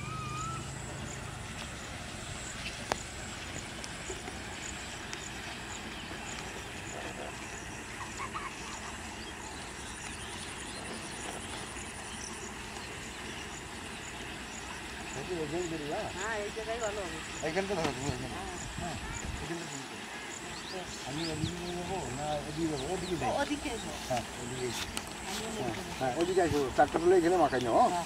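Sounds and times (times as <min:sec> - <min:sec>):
outdoor background noise: 0:00.0 - 0:28.0
faint high ticks and chirps: 0:01.0 - 0:07.7, 0:09.2 - 0:16.3, 0:20.3 - 0:28.0.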